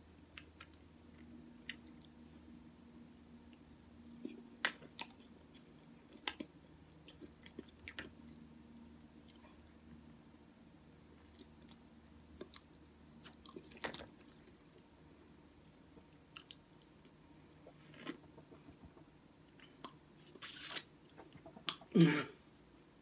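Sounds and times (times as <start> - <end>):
faint steady hum: 0.0 - 23.0
person chewing food: 3.5 - 8.5, 9.2 - 9.8, 11.2 - 14.9, 15.5 - 22.0.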